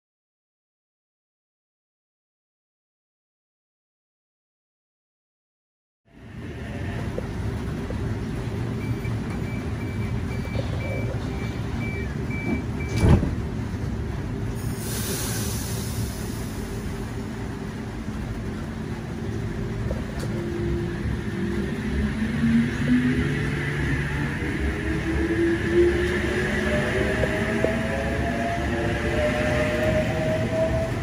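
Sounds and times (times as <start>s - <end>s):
train idling hum: 6.1s - 31.0s
door warning beeps: 8.8s - 13.2s
air hissing: 14.6s - 16.6s.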